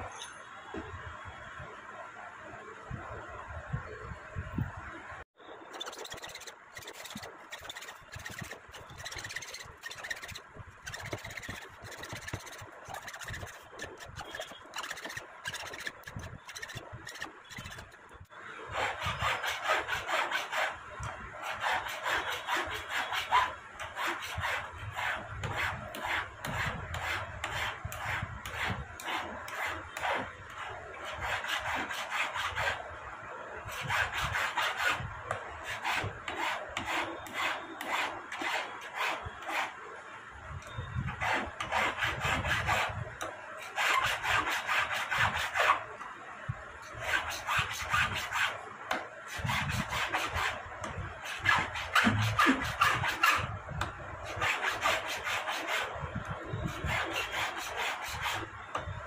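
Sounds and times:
hand tool rasping on metal ring: 5.7 - 18.2.

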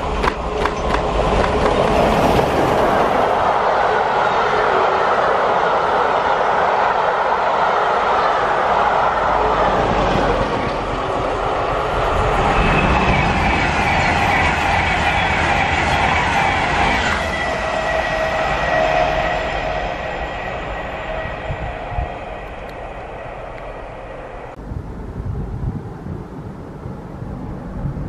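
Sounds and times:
train coaches clattering over rails: 0.0 - 3.5, 8.1 - 24.6
electric train high whine: 0.0 - 24.8.

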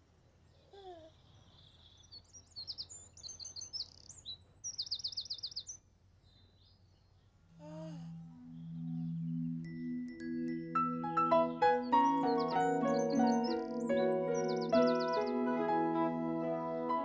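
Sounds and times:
faint low hum: 5.6 - 10.1.

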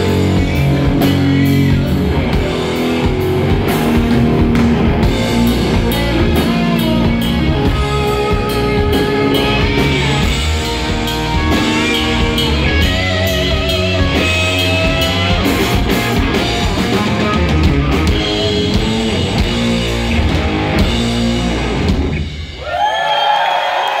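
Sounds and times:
live rock band playing: 0.0 - 22.8
crowd cheering: 22.2 - 24.0.

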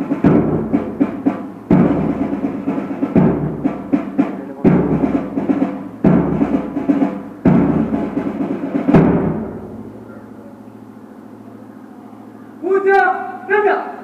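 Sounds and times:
deep drum beats: 0.0 - 10.2.

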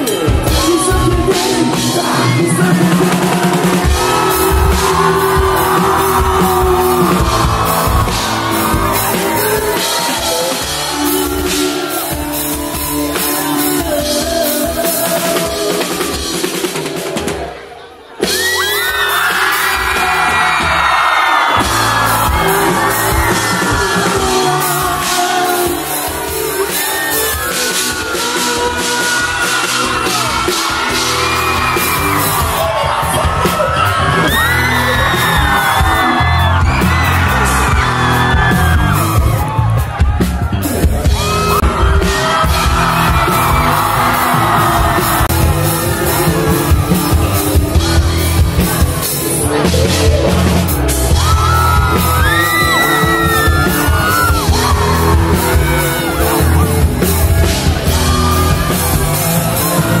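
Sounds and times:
lead singer vocals: 0.0 - 17.6, 19.0 - 39.4, 40.7 - 60.0
drum kit: 0.0 - 60.0
electric guitar: 18.3 - 60.0.

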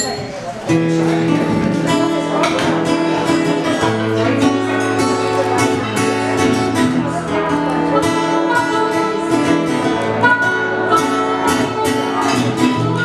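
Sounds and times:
acoustic guitar: 0.0 - 13.0
upright bass: 0.8 - 13.0
harmonica: 7.6 - 13.0.

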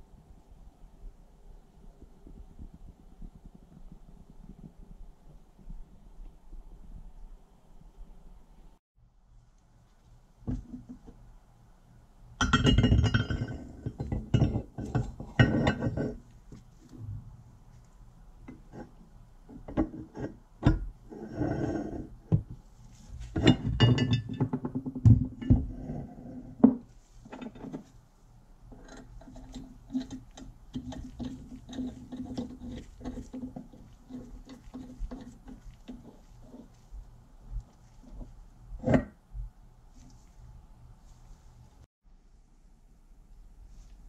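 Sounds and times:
screw clicking and scraping: 28.7 - 36.8.

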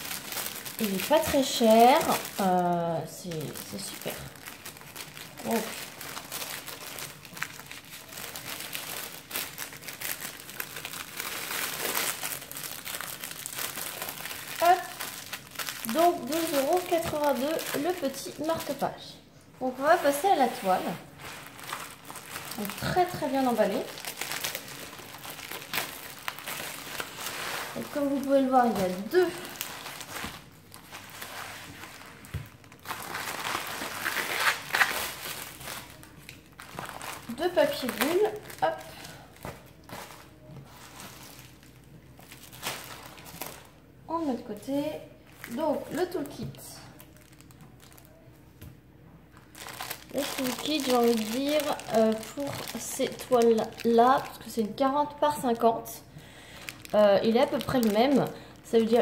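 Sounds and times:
plastic bags crinkling: 0.0 - 59.0.

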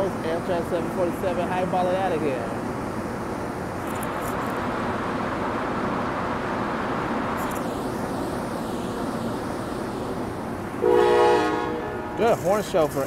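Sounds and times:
train engine running: 0.0 - 13.0.

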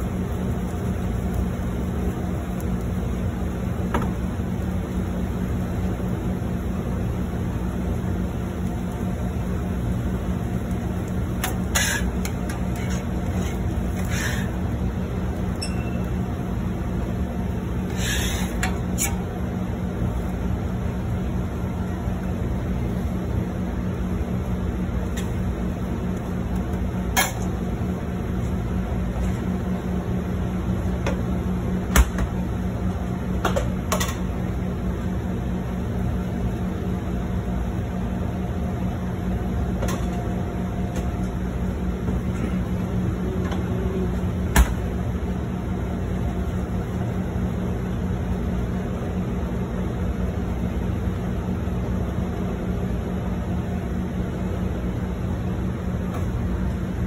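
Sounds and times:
kitchen equipment humming: 0.0 - 47.4.

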